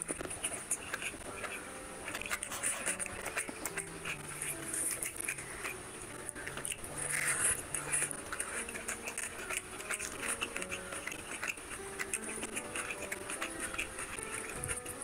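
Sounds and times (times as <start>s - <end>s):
fingers squishing rice and gravy: 0.0s - 15.0s.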